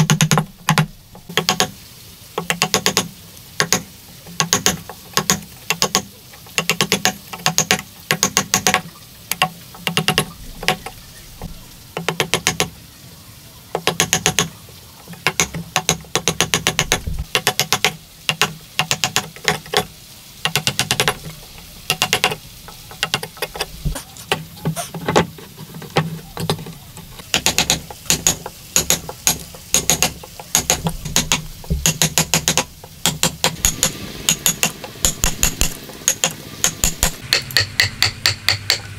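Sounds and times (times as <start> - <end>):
hammer striking chisel into wood: 0.0 - 1.7, 2.4 - 10.9, 12.0 - 12.7, 13.8 - 14.5, 15.2 - 21.2, 21.9 - 22.4, 27.3 - 38.9.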